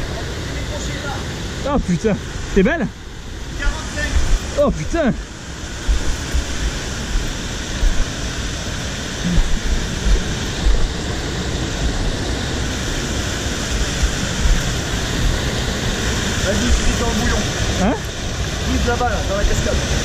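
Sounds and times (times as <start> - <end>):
rushing white water: 0.0 - 20.0
low bumps: 2.5 - 12.4, 13.7 - 17.2.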